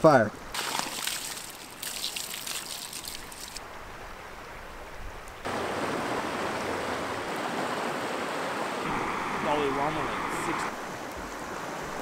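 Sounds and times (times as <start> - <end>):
water splashing on fire: 0.5 - 3.6
river rushing: 2.6 - 12.0.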